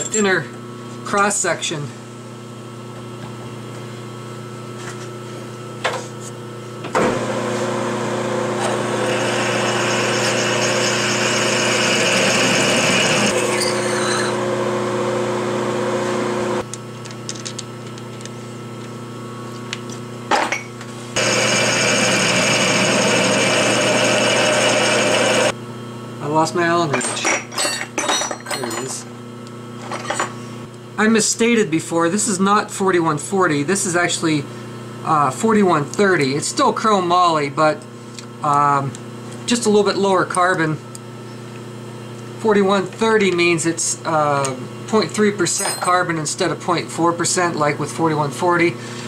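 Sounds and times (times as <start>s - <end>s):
lathe motor humming: 7.0s - 16.6s, 21.2s - 25.6s
drill cutting steel: 8.4s - 16.6s, 21.2s - 25.5s.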